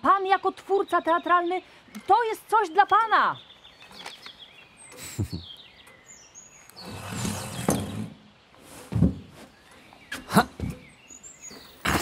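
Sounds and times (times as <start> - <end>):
small birds chirping: 0.0 - 12.0
dull thumps: 8.8 - 11.0.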